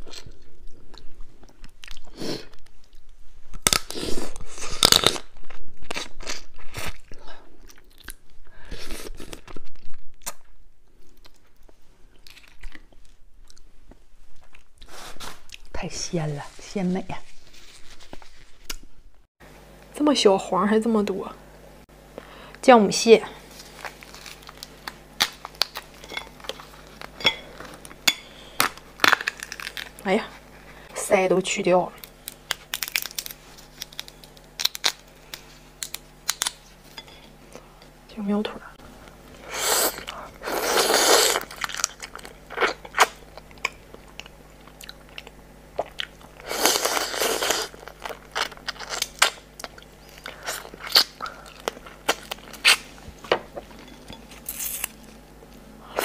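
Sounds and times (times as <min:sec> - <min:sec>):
chewing and crunching crab: 0:23.6 - 0:30.6, 0:32.0 - 0:38.0, 0:39.1 - 0:55.2
crab shell cracking: 0:28.6 - 0:30.0, 0:32.0 - 0:36.6.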